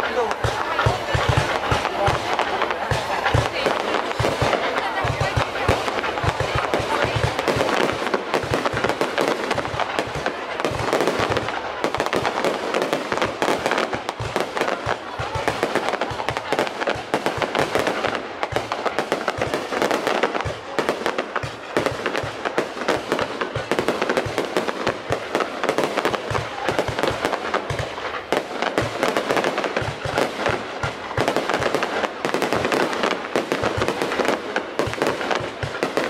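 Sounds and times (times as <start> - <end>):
fireworks barrage of bangs and crackles: 0.0 - 36.0.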